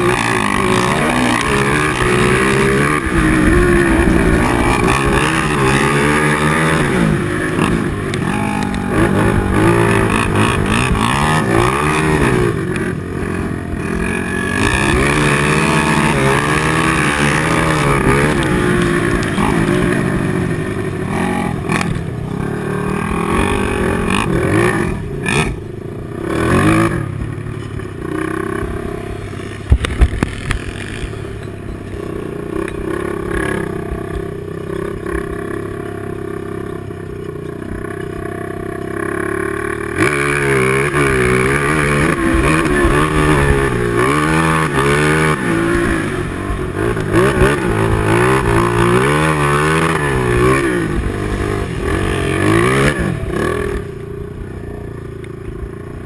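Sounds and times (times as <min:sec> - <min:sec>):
quad engine revving: 0:00.0 - 0:56.0.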